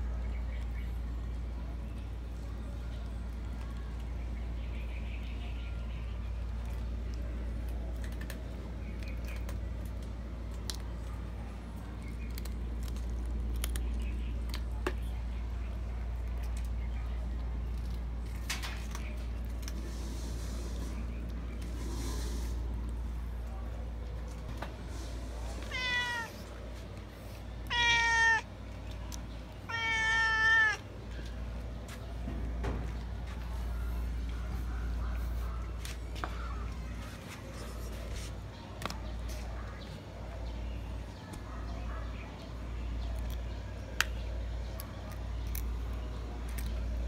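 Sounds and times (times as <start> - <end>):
cats chewing wet crunching: 6.2 - 32.0, 42.6 - 47.0
cat meowing: 25.7 - 26.4, 27.7 - 28.5, 29.7 - 30.8.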